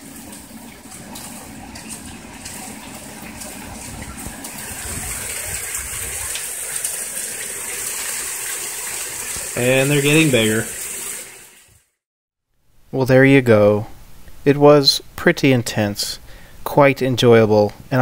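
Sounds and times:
rain hissing: 0.0 - 11.7.

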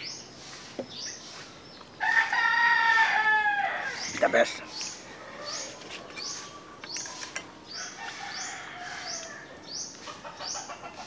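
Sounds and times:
bird high chirps: 3.8 - 11.0.

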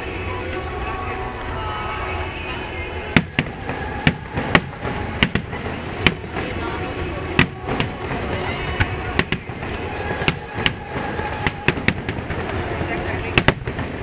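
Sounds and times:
crowd chatter: 0.0 - 14.0
firework shells bursting: 3.1 - 14.0.

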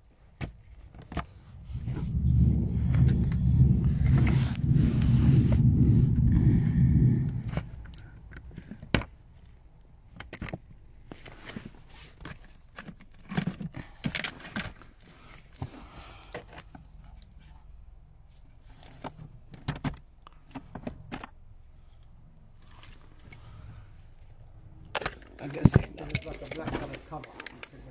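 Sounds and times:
loud low rumble: 1.3 - 8.6.

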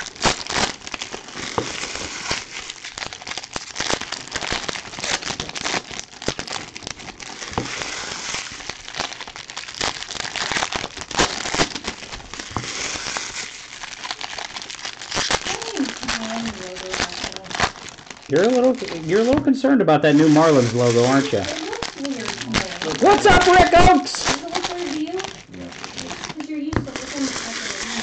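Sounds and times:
foil wrappers crinkling: 0.0 - 28.0.

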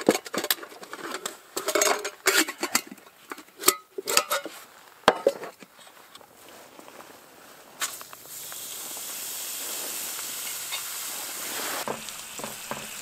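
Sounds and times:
metal cookware clattering: 0.0 - 5.6.

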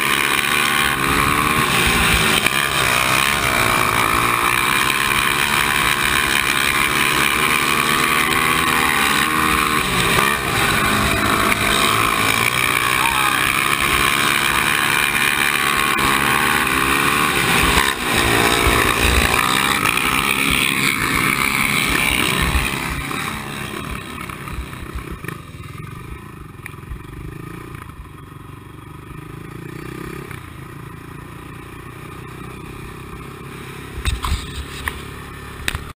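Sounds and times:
quad engine revving: 0.0 - 26.0.

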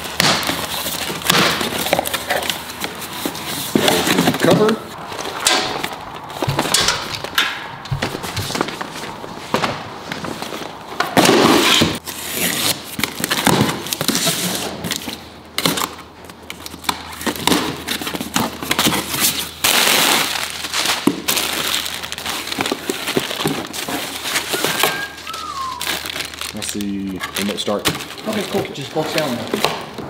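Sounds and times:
cardboard box rustling: 0.5 - 7.3, 21.9 - 29.7
plastic packaging crinkling: 16.6 - 29.9.

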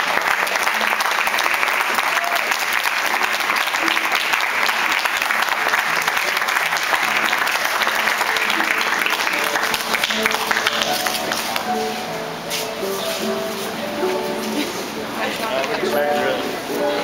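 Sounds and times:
crowd applauding: 0.0 - 11.7.

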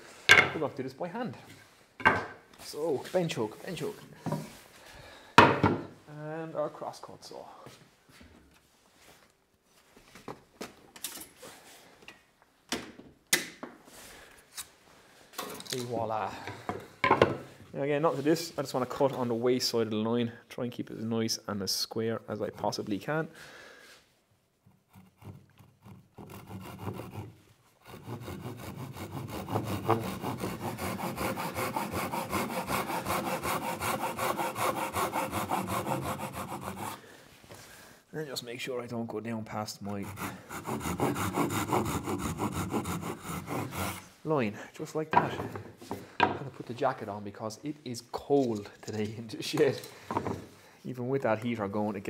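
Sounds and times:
wood and tools knocking: 5.4 - 5.9, 45.1 - 46.5, 50.1 - 50.5
hand saw cutting wood: 24.7 - 37.0, 39.9 - 44.1.

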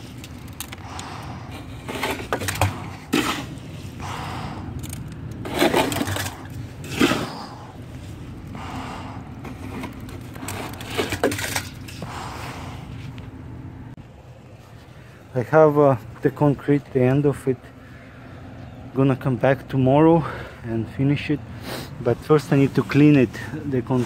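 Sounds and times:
shovel scraping wet concrete: 1.5 - 3.6, 5.4 - 7.4.

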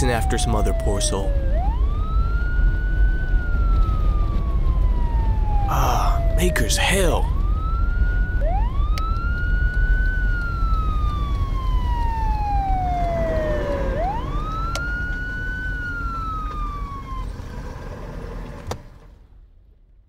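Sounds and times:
police siren wailing: 0.0 - 18.2
car road rumble: 7.3 - 19.8.

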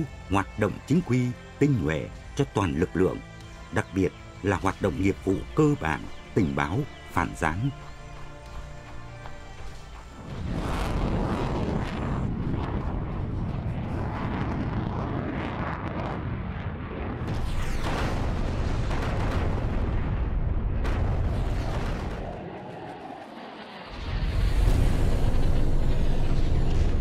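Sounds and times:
jet aircraft rumble: 0.0 - 27.0
falling whine: 3.2 - 20.0
bombs exploding: 10.2 - 22.4.

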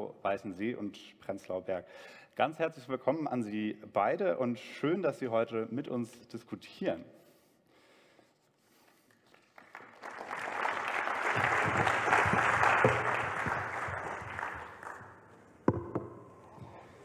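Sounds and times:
audience applause: 9.3 - 15.3.

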